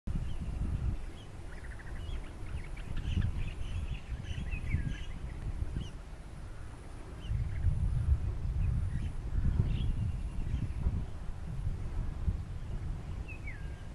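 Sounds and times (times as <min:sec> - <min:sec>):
bird trill: 0:00.1 - 0:06.6, 0:12.6 - 0:13.9
birds chirping: 0:00.1 - 0:13.9.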